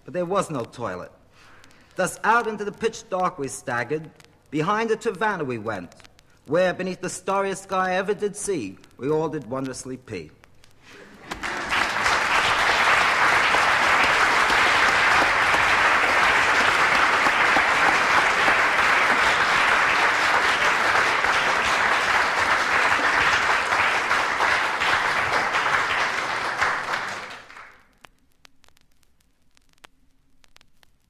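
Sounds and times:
vinyl record crackle and clicks: 0:00.0 - 0:31.0
audience applauding: 0:11.0 - 0:27.9.

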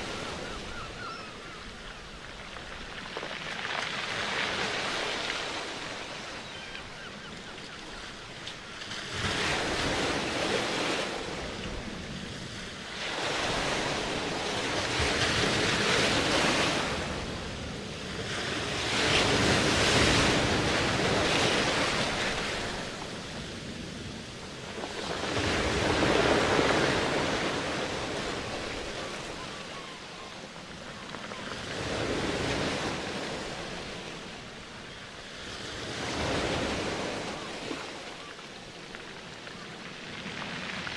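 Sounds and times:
ocean waves breaking: 0:00.0 - 0:40.9.

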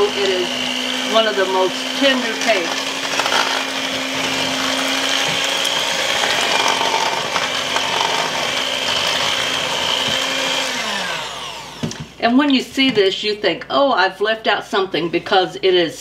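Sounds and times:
electric hand mixer whirring: 0:00.0 - 0:12.2.

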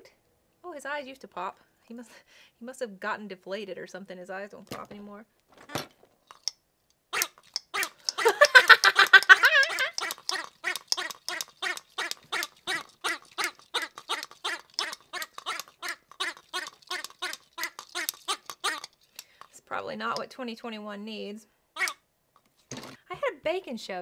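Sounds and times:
squeeze toy gurgling: 0:07.2 - 0:19.3, 0:21.8 - 0:22.0.

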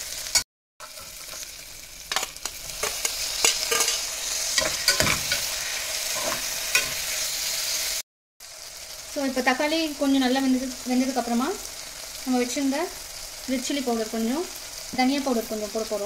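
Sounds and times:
vegetables sizzling in hot oil: 0:00.0 - 0:16.0
steel spoon scraping a pot: 0:02.1 - 0:07.2.

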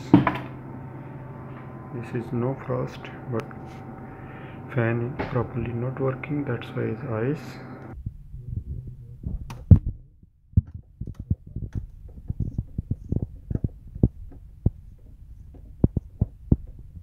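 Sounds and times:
freezer low steady hum: 0:00.0 - 0:17.0
sharp clicks and knocks: 0:09.2 - 0:10.0, 0:10.6 - 0:17.0.

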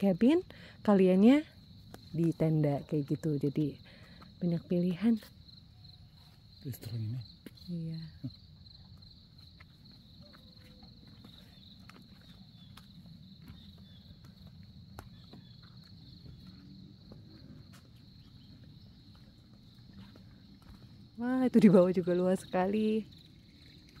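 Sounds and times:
insects chirping: 0:00.0 - 0:24.0
faint footsteps: 0:08.6 - 0:21.5.

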